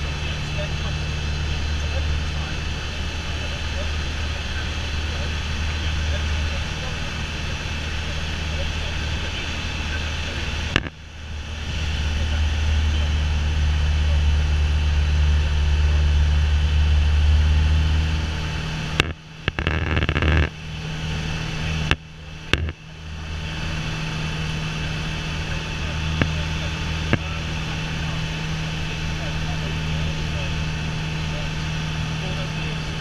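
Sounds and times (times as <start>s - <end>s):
propeller plane engine drone: 0.0s - 33.0s
sharp clicks: 19.0s - 20.5s.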